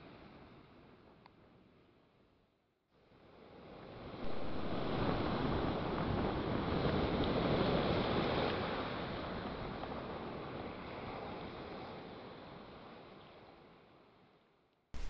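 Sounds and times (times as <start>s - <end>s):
sea waves surf rushing: 4.2s - 8.8s.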